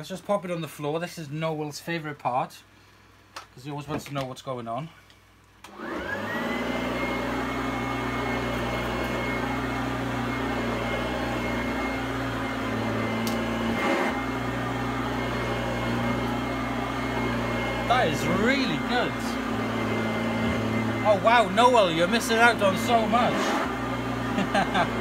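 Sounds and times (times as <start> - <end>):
vacuum cleaner motor whine: 5.7 - 25.0.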